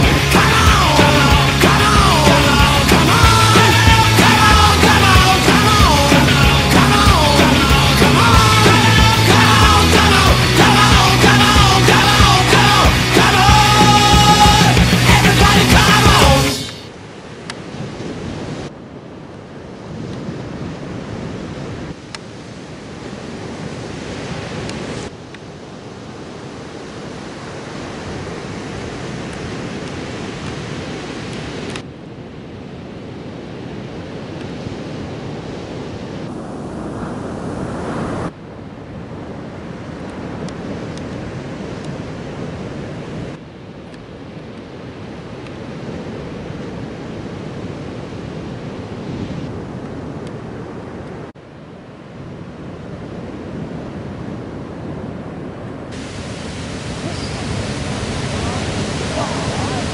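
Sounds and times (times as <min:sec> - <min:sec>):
waves washing on beach: 0:00.0 - 0:59.9
wind buffeting microphone: 0:52.2 - 0:59.9.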